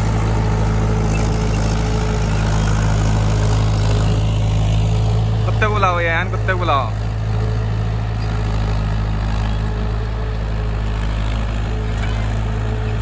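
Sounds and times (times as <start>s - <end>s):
tractor diesel engine droning: 0.0s - 13.0s.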